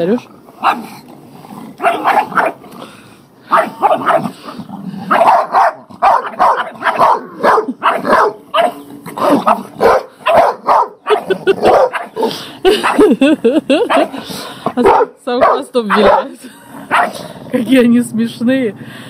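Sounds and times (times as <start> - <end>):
large dog barking: 0.6 - 0.9, 1.8 - 2.6, 3.5 - 13.2, 13.8 - 17.2.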